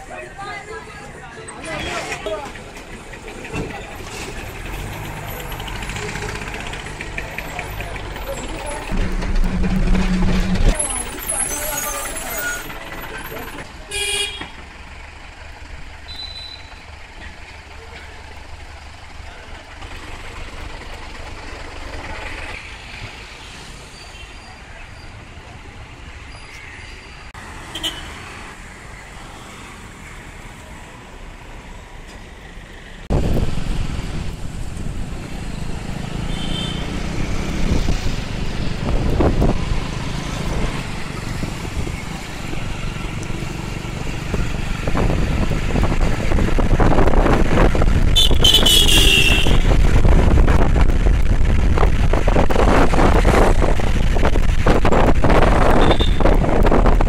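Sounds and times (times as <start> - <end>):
road traffic: 0.0 - 57.0
high-pitched squeal: 7.6 - 13.5
wind on microphone: 37.4 - 42.6, 44.3 - 57.0.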